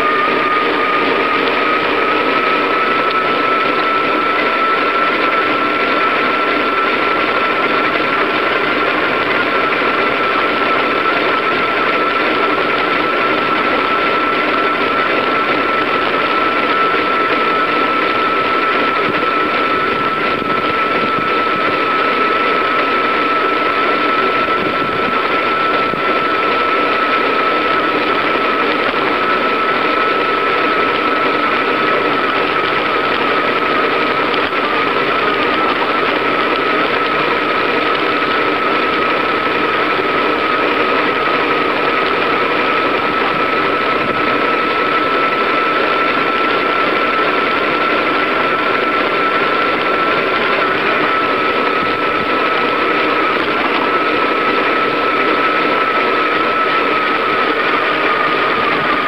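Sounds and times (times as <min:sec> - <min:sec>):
bicycle road noise whirring: 0:00.0 - 0:59.0
high whine: 0:00.0 - 0:59.0.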